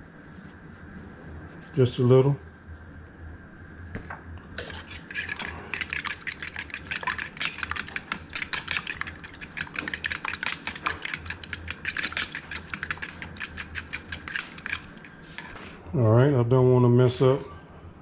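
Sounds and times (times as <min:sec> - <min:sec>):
fork clicking against a bowl: 0:05.1 - 0:15.1.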